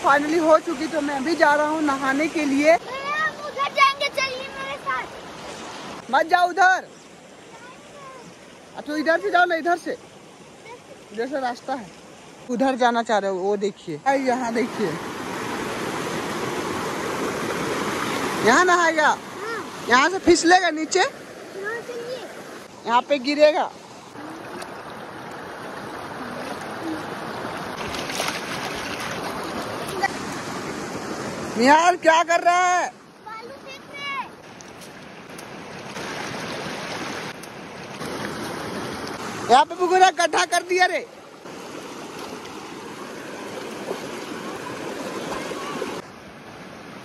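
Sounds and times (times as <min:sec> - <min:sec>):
water splashing: 0:00.0 - 0:12.9, 0:14.1 - 0:46.1
stream water running over rock: 0:00.0 - 0:47.0
hands swishing through water: 0:27.8 - 0:30.2.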